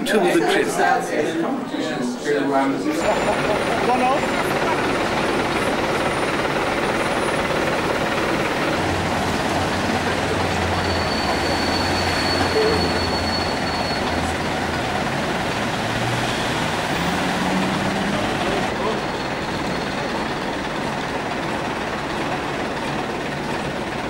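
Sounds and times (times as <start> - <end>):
coach engines running: 0.0 - 24.0
road traffic: 2.9 - 24.0
thin high whistle: 10.8 - 14.2.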